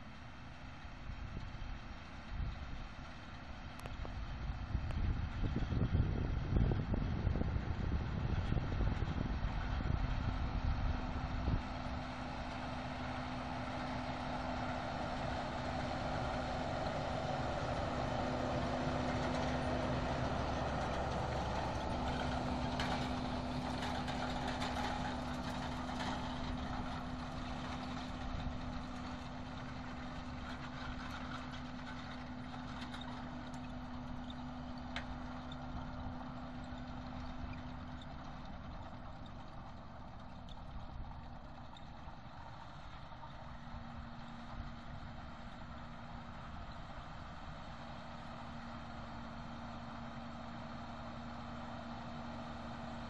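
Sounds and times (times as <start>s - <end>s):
tractor diesel engine running: 0.0s - 53.0s
wind buffeting microphone: 4.0s - 11.8s
light rattles: 10.9s - 53.0s.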